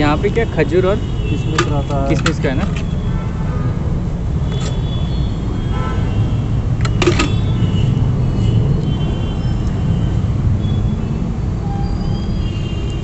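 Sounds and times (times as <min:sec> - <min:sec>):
road traffic rumble: 0:00.0 - 0:13.0
sharp clatter: 0:06.8 - 0:07.5.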